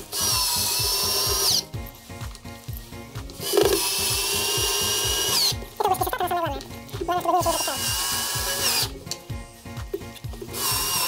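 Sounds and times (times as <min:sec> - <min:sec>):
drill-driver motor whining: 0:00.0 - 0:01.7, 0:03.4 - 0:05.6, 0:07.4 - 0:09.1, 0:10.2 - 0:11.0
background music with steady beat: 0:00.0 - 0:11.0.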